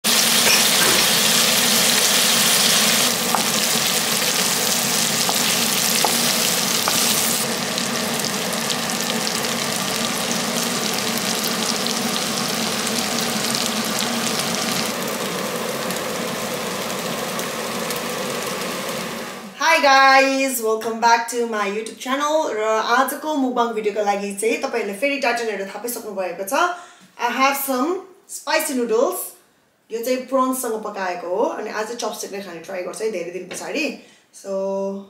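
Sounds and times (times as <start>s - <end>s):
food sizzling in a pan: 0.0s - 19.6s.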